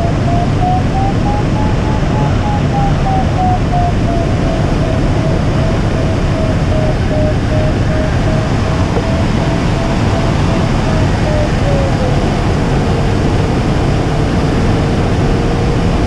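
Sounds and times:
variometer beeping tone: 0.0s - 12.8s.

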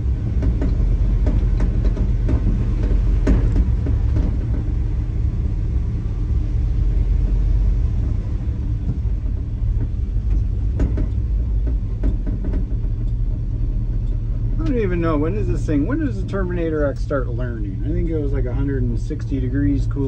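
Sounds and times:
truck engine and road rumble: 0.0s - 20.0s
short knocks: 0.4s - 4.8s, 8.8s - 15.2s.

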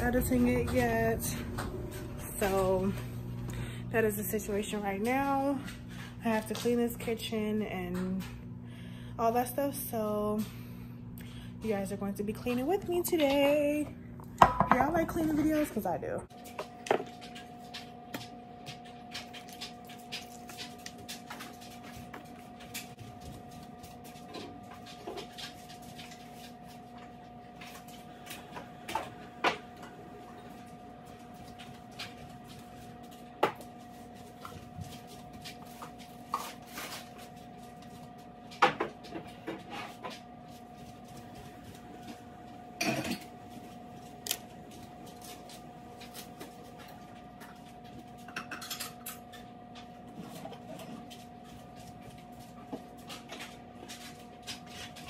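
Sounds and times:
low electrical hum: 0.0s - 55.0s
dishes clattering: 14.4s - 15.7s, 42.8s - 43.3s, 48.3s - 49.3s.

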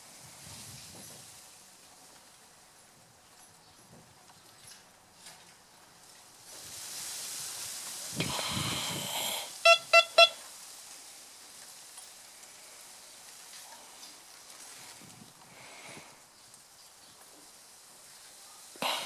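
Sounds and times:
hiss and low rumble: 6.0s - 19.0s
metal detector beeps: 9.7s - 10.4s.

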